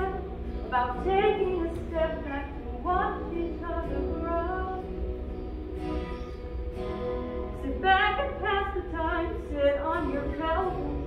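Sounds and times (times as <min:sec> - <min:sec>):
woman singing: 0:00.0 - 0:05.2, 0:07.6 - 0:11.0.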